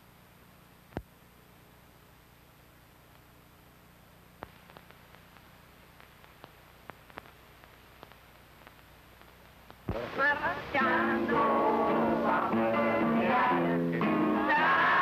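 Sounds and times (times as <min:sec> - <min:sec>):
recording hiss and hum: 0:00.0 - 0:15.0
clicks and pops: 0:04.4 - 0:10.0
song with guitar and singing: 0:09.9 - 0:15.0.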